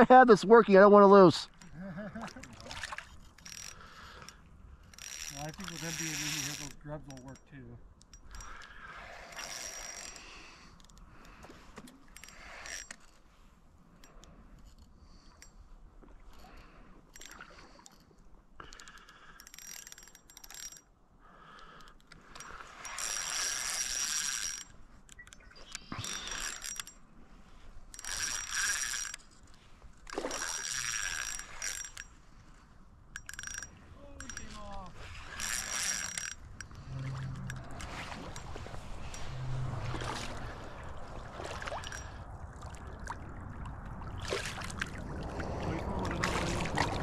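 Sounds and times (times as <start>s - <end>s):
fishing reel whirring and clicking: 2.5s - 13.2s, 18.6s - 27.0s, 27.9s - 32.2s, 33.1s - 40.6s, 41.7s - 42.2s.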